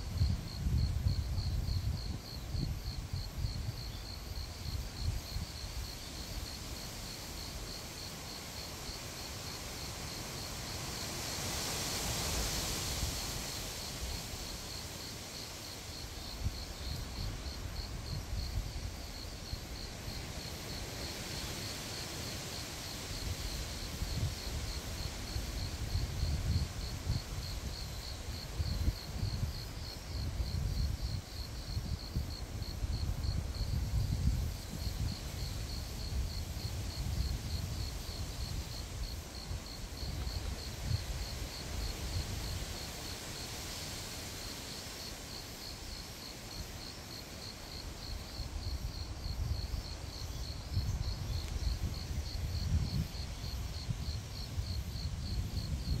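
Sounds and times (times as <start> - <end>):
insect chirping: 0.0 - 56.0
wind gusting on microphone: 0.0 - 56.0.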